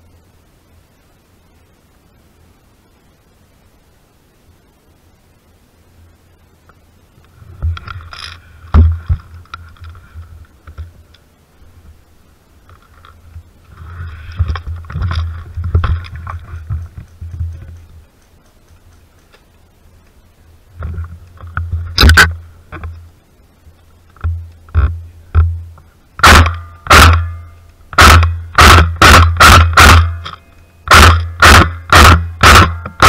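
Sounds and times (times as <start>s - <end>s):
rustling against microphone: 7.2s - 26.0s.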